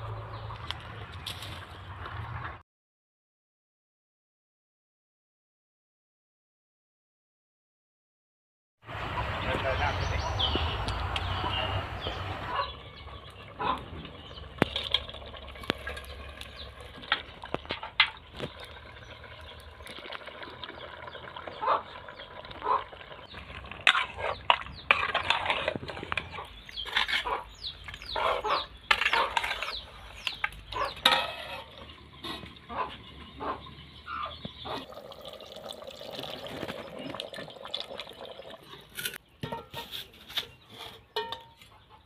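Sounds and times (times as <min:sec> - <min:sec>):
chickens clucking: 0:20.8 - 0:23.4, 0:24.0 - 0:35.1, 0:39.5 - 0:42.0.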